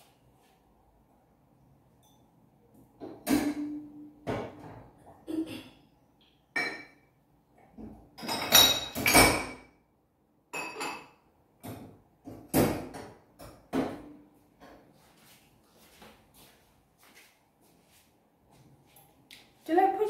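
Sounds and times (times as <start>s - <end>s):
drinking glasses clinking: 10.6s - 11.2s.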